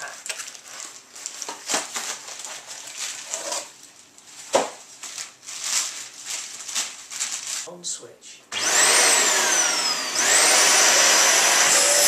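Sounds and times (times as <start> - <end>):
plastic packaging crinkling: 0.0 - 7.7.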